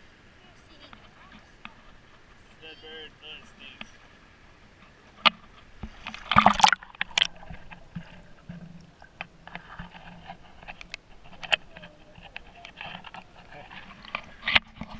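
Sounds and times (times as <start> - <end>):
sharp clicks underwater: 4.8 - 14.9
water splash: 5.1 - 10.0.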